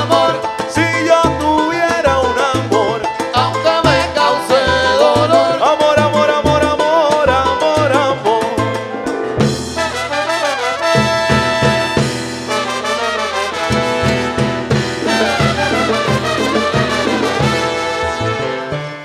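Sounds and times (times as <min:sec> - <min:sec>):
salsa band playing: 0:00.0 - 0:19.0
trumpets playing melody: 0:09.7 - 0:19.0.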